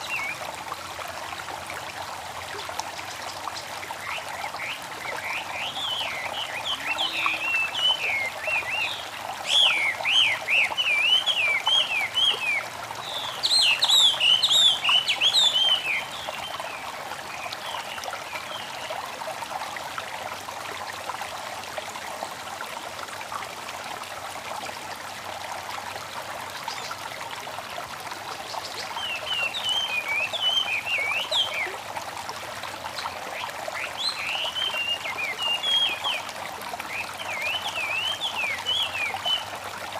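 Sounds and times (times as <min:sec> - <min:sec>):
stream trickling: 0:00.0 - 0:39.9
songbirds chirping: 0:02.6 - 0:18.9.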